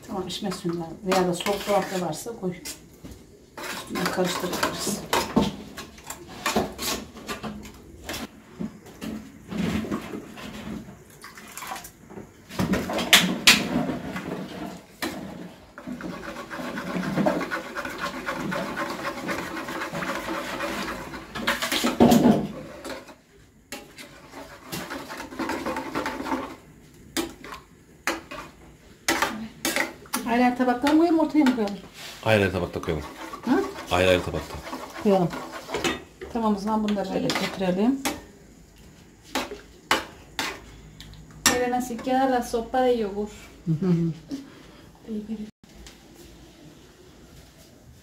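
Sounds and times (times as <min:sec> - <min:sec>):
metal spoon scraping bowl: 0:01.1 - 0:02.8, 0:03.6 - 0:07.4, 0:15.8 - 0:22.0, 0:23.8 - 0:26.5, 0:30.8 - 0:36.1.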